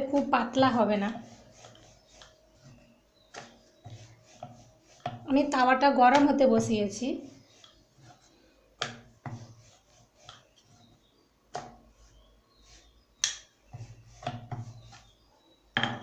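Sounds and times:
hand rubbing dough on board: 0.0 - 16.0
sharp wooden knocks: 15.8 - 16.0.

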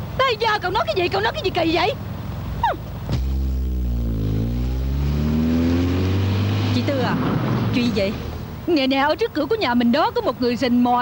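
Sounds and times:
sustained low synthesizer chord: 3.1 - 6.2.

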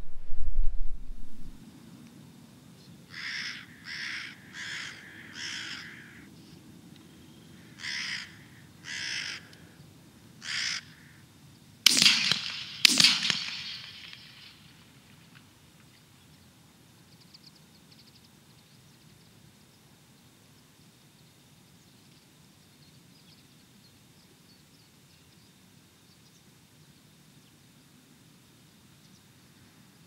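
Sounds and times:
crow cawing: 3.1 - 6.3, 7.6 - 9.8, 10.4 - 11.2
shotgun shots echoing: 11.9 - 15.1.

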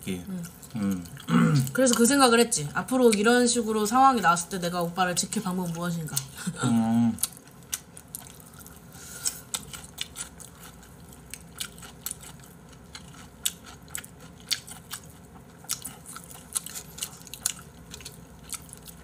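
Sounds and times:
person chewing crunchy food: 6.2 - 19.0.

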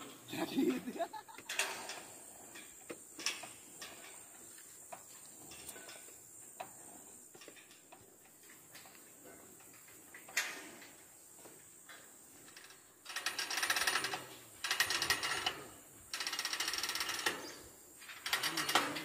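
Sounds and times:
lever hoist ratchet clicking: 12.5 - 19.0.

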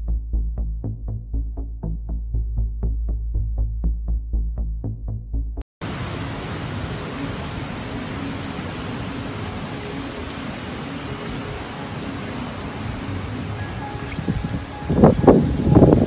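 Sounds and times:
torrential rain hissing: 5.8 - 16.0.

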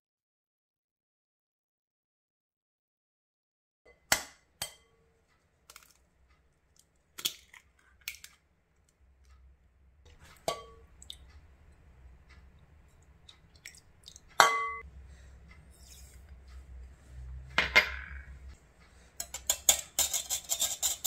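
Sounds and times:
soft clink against glass: 14.4 - 14.8.

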